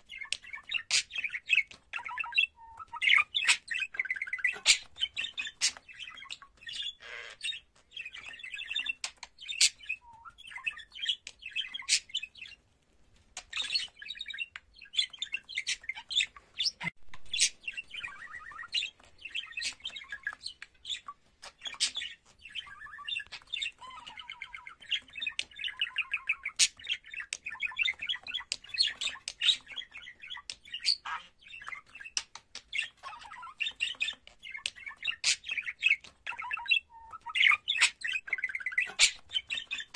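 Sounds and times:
budgerigar warbling: 7.0s - 7.6s.

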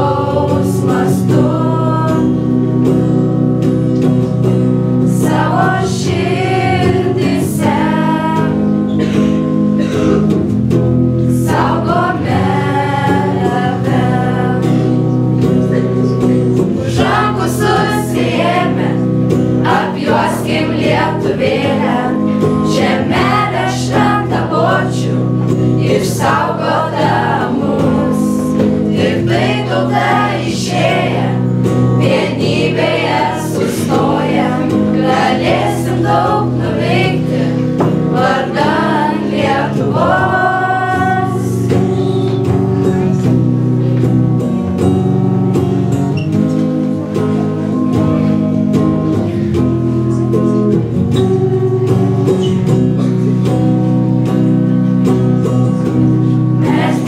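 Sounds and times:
students singing together: 0.0s - 3.0s, 5.0s - 9.2s, 11.3s - 15.6s, 16.5s - 42.5s, 56.3s - 57.0s
electric guitar: 0.0s - 57.0s.

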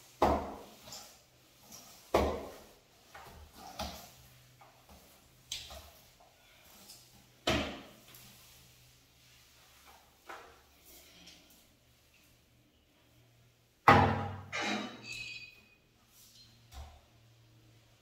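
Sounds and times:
knocks echoing in tiled shower: 0.2s - 1.0s, 2.1s - 4.0s, 13.8s - 14.6s.

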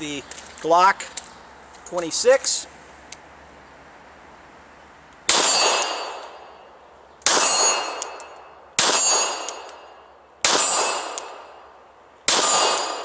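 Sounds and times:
pistol shots: 5.3s - 6.5s, 7.2s - 11.6s, 12.2s - 13.0s
steel plate clanging: 7.3s - 10.0s.

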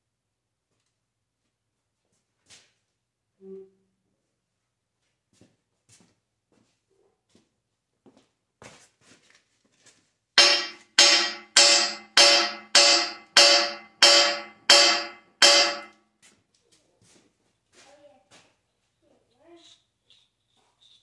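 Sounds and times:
hammer striking steel: 10.4s - 15.9s.

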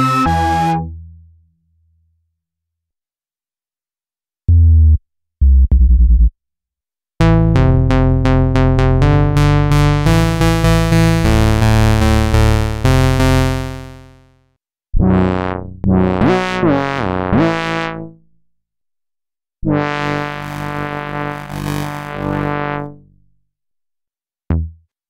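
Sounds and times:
sliding synthesizer notes: 0.0s - 1.0s, 7.2s - 14.1s, 19.8s - 22.8s
synthesizer bass line: 0.0s - 1.2s, 4.5s - 6.3s, 7.2s - 14.1s, 19.8s - 22.8s
synthesizer bass stabs: 7.2s - 14.0s, 20.0s - 22.7s.

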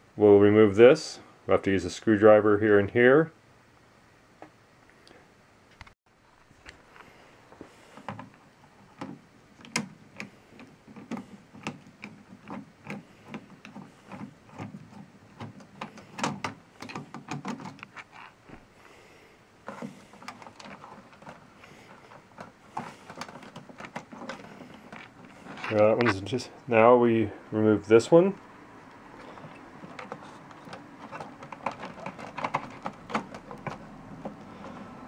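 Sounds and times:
screwdriver clicking and scraping: 9.0s - 18.4s, 19.7s - 26.1s, 29.2s - 35.0s
connector being worked free: 29.2s - 35.0s.

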